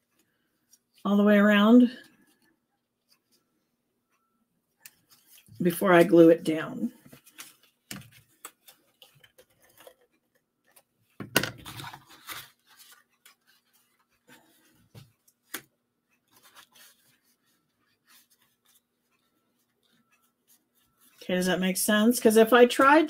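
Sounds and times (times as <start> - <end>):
paper rustling and rubbing: 4.9 - 6.1, 7.0 - 10.9, 11.6 - 15.6, 16.2 - 21.2.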